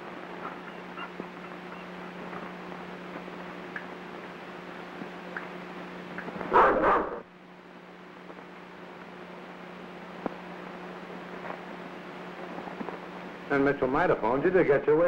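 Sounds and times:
low hum and hiss: 0.0s - 15.0s
dog barking: 6.5s - 7.2s.

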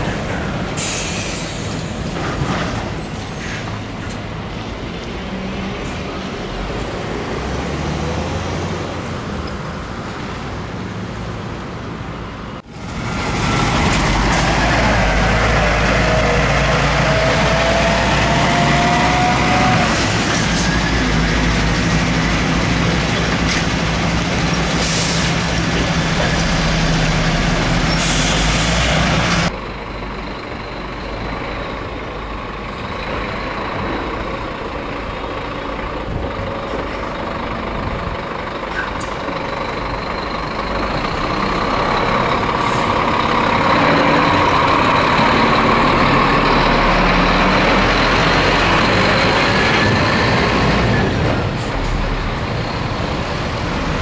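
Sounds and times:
truck engine and road noise: 0.0s - 54.0s.

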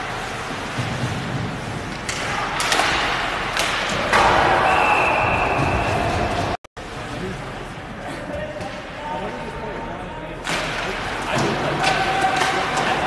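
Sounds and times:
puck and sticks hitting boards: 0.6s - 4.7s, 10.4s - 13.0s
referee's whistle: 4.6s - 6.0s.

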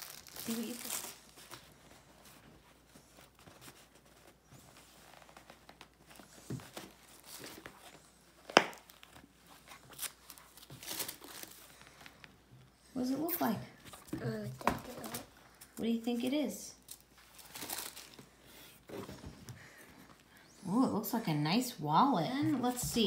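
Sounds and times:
plastic wrapping crinkling: 0.0s - 12.2s, 16.2s - 18.5s.

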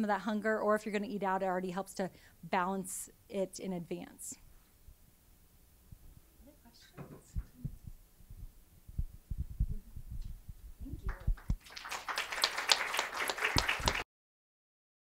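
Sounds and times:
audience applause: 11.1s - 14.1s.

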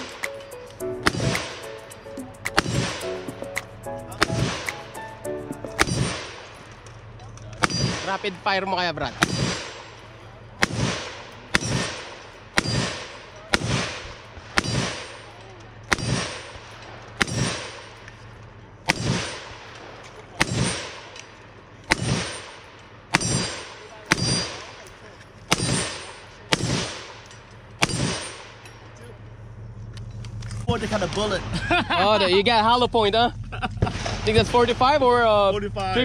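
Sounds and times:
gunshots with ringing tail: 1.0s - 5.0s, 5.6s - 29.0s, 33.8s - 35.0s.

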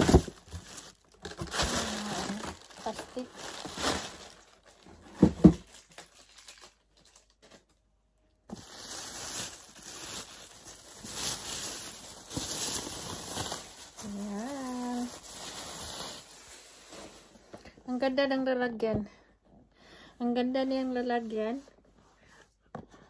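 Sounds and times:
plastic bag rustling and crinkling: 0.0s - 17.7s.

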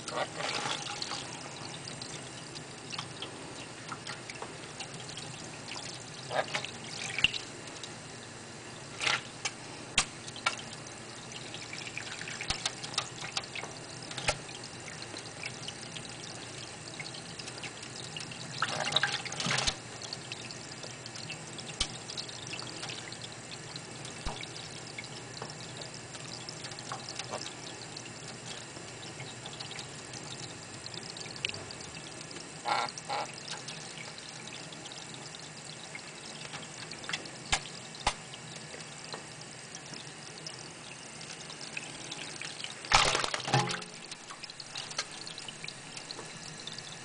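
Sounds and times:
water running onto steel sink: 0.0s - 47.0s
bird flapping wet wings: 42.9s - 43.8s.

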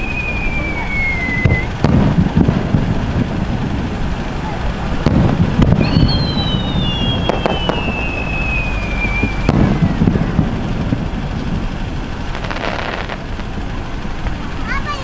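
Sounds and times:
falling firework whistle: 0.0s - 3.4s, 5.0s - 11.7s, 12.3s - 13.6s
continuous low rumble: 0.0s - 15.0s
fireworks booms and bangs: 0.0s - 15.0s.

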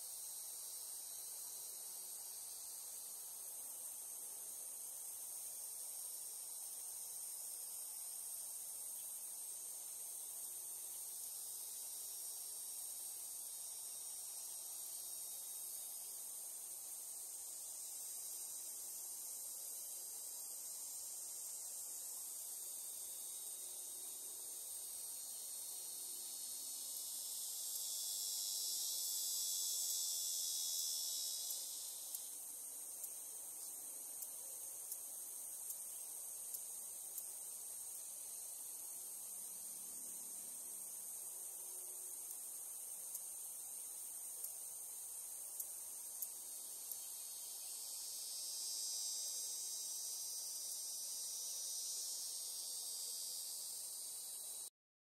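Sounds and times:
cicadas buzzing: 0.0s - 54.7s
faint ticks: 26.2s - 51.4s.

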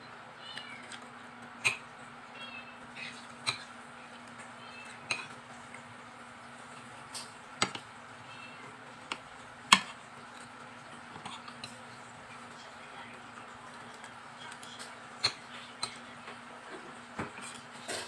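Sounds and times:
cutlery clinking against bowl: 1.6s - 1.9s, 3.4s - 3.7s, 4.3s - 5.4s, 13.8s - 16.4s, 17.2s - 18.0s.

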